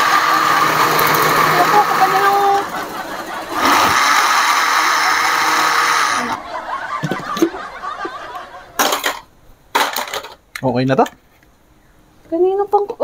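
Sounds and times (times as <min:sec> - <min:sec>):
electric blender running: 0:00.0 - 0:07.6.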